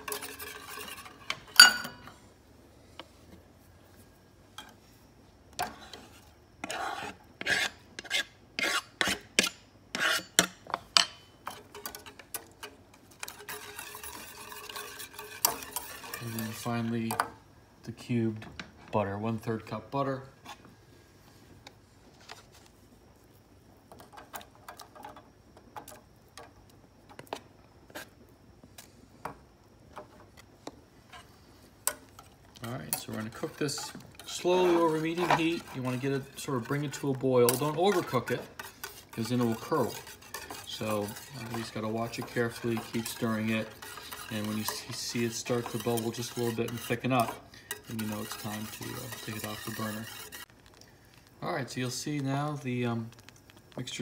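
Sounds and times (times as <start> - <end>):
rasping scrapes across cutting board: 5.7 - 10.4, 13.3 - 16.6, 33.1 - 50.5.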